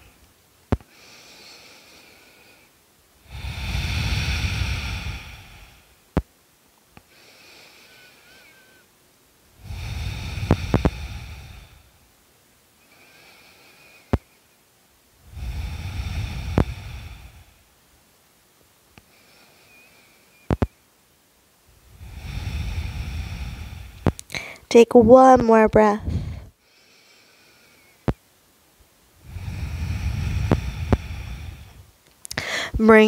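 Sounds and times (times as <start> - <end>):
deep human breathing: 0.8 - 6.2, 7.0 - 8.9, 9.5 - 12.1, 12.8 - 14.6, 15.2 - 17.8, 19.0 - 20.8, 21.7 - 24.7, 26.0 - 28.2, 29.2 - 32.8.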